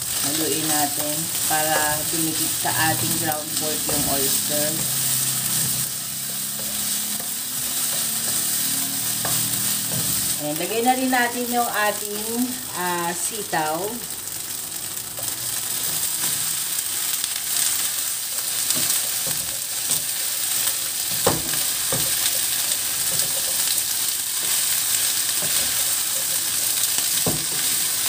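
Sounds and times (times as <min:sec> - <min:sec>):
beans sizzling in hot oil: 0:00.0 - 0:28.0.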